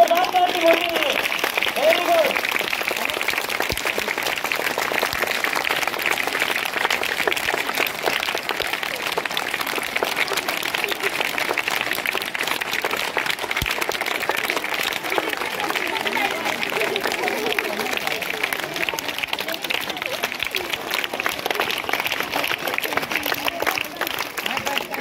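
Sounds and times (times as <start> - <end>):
children clapping: 0.0 - 25.0.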